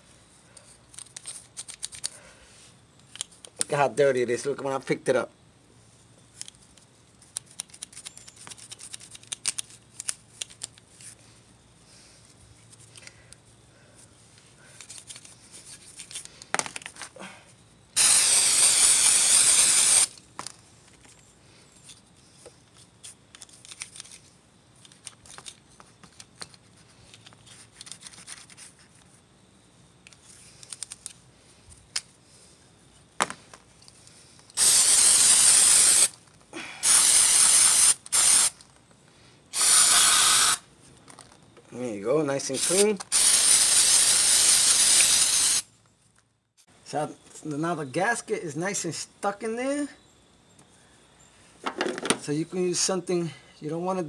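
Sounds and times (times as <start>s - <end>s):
aerosol spray hissing: 18.0s - 20.1s, 34.6s - 36.1s, 36.8s - 38.5s, 39.6s - 40.6s, 42.6s - 45.7s.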